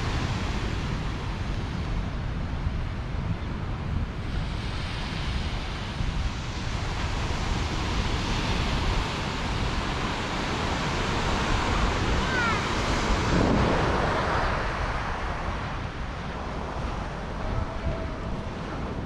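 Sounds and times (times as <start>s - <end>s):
wind rumbling on microphone: 0.0s - 19.0s
ocean surf breaking: 4.2s - 19.0s.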